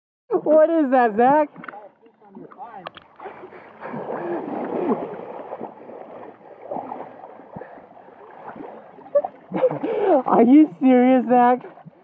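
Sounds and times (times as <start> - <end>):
river water splashing: 0.9 - 12.0.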